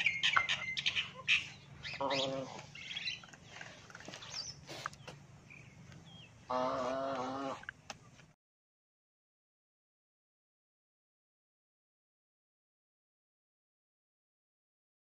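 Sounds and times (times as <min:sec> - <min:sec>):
small birds chirping: 0:00.0 - 0:08.2.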